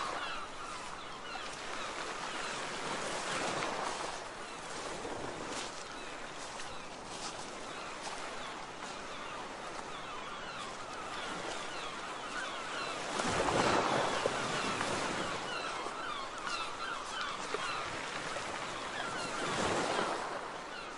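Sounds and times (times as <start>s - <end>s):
gulls calling: 0.0s - 3.9s, 5.5s - 20.9s.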